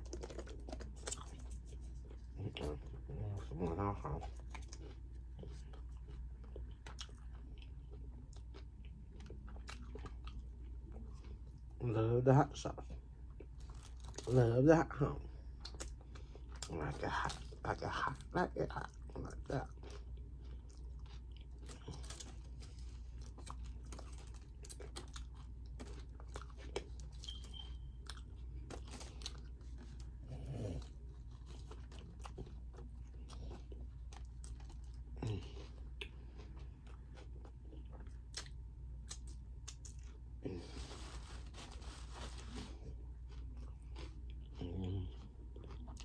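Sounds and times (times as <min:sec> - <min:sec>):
chewing and crunching: 0:00.0 - 0:46.0
foil rustling: 0:40.6 - 0:42.8.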